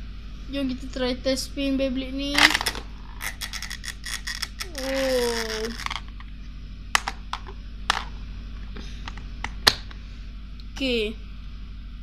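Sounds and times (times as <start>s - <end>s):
spinning top whirring scrape: 2.4s - 6.2s.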